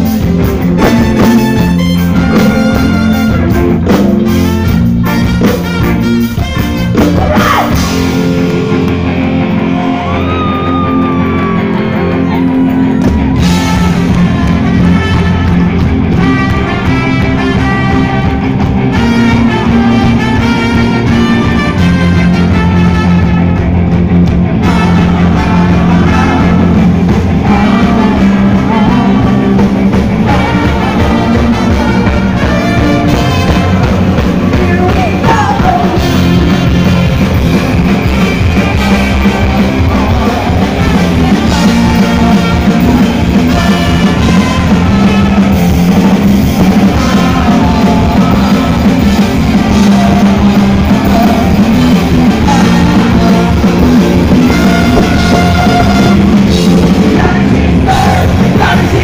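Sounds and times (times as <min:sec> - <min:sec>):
bass guitar: 0:00.0 - 0:59.0
drum kit: 0:00.0 - 0:59.0
electric guitar: 0:00.0 - 0:59.0
person singing lead vocal: 0:07.0 - 0:08.1, 0:24.6 - 0:37.0, 0:38.4 - 0:59.0.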